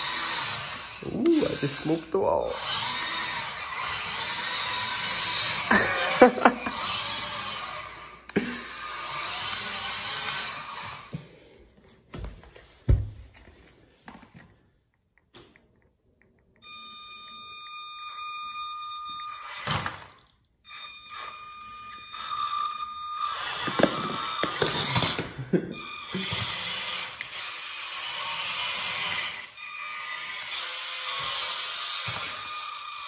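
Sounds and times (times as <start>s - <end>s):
toy truck tracks rattling: 0.0s - 11.1s, 23.3s - 25.4s, 26.1s - 33.0s
electric motor whine: 0.0s - 11.2s, 20.7s - 33.0s.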